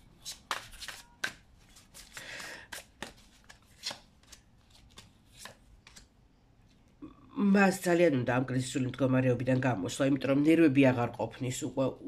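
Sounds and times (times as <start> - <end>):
cards shuffling: 0.2 - 6.1
cards snapping and slapping: 0.3 - 6.1.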